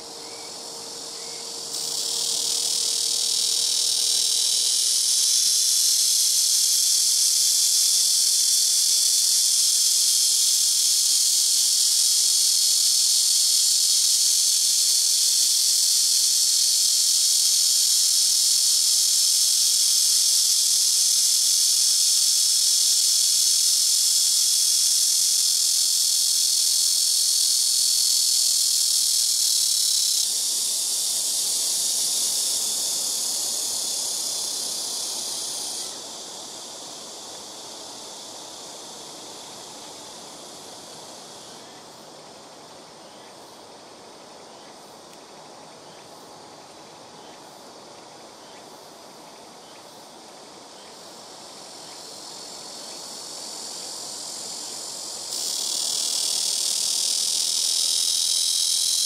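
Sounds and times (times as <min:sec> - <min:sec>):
cicada buzzing drone: 0:00.0 - 0:59.0.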